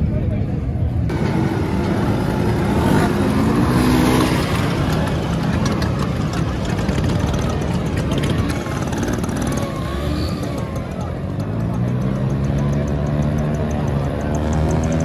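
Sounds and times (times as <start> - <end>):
scooter engines droning: 0.0 - 15.0.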